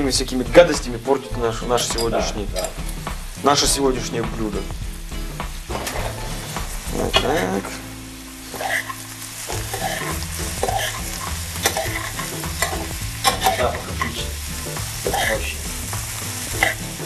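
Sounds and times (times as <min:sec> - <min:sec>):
mushrooms sizzling in oil: 0:00.0 - 0:17.0
spatula scraping a pan: 0:05.7 - 0:07.6, 0:08.5 - 0:14.2.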